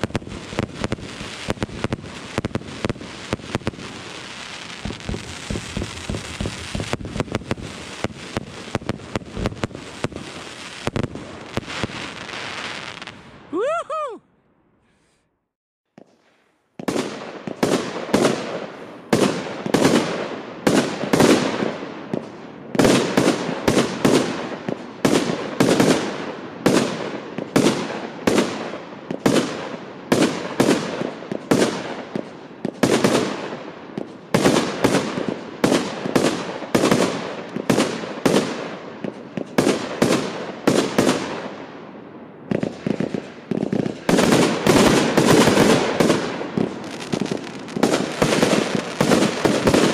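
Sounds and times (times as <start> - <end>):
firework cake shots firing: 4.7 - 10.2, 42.5 - 49.9.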